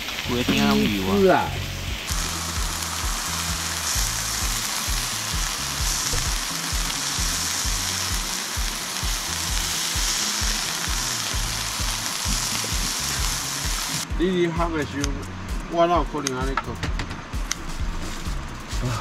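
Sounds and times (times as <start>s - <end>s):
steaks sizzling in frying pan: 0.0s - 14.0s.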